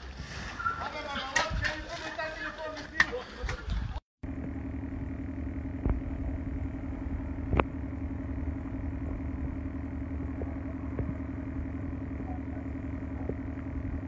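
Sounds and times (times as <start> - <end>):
low drone hum: 4.2 - 14.0.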